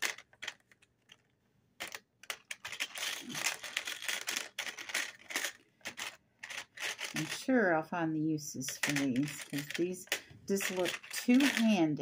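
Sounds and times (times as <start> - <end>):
metal pieces clicking on plastic tray: 1.8 - 7.4, 8.7 - 11.8.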